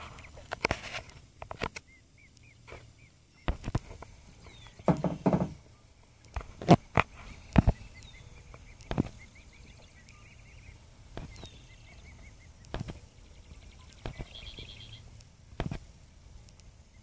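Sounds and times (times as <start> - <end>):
birds chirping: 0.0 - 17.0
sudden knocks: 4.8 - 5.6.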